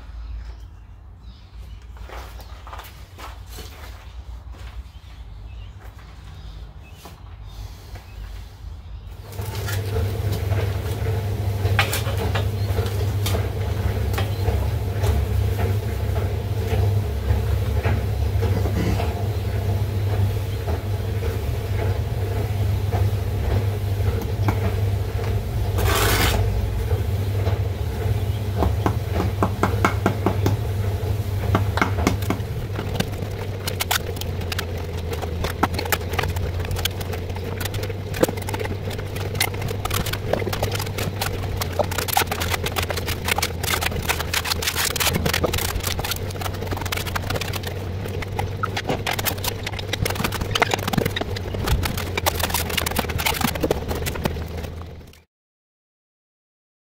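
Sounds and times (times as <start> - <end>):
steady low hum: 0.0 - 55.2
trowel scraping mortar: 25.7 - 26.6, 31.9 - 54.8.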